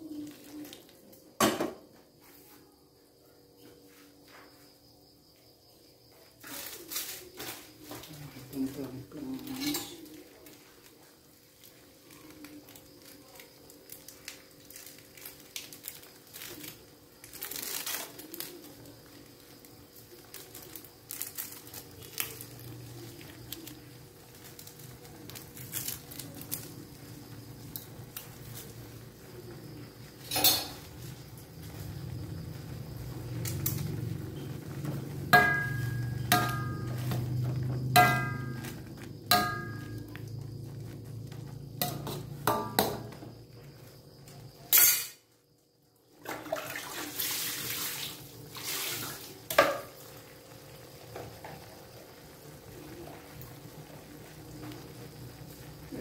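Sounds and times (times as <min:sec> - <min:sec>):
soup boiling rumble: 0:18.5 - 0:44.2, 0:46.2 - 0:56.0
metal ladle clanking on wok: 0:35.4 - 0:37.2, 0:37.9 - 0:40.0.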